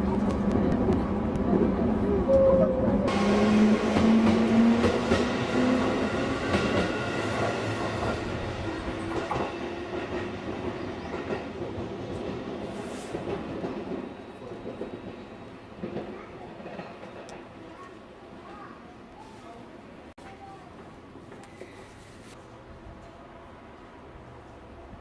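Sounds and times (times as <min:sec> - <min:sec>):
train low whine: 0:00.0 - 0:18.5.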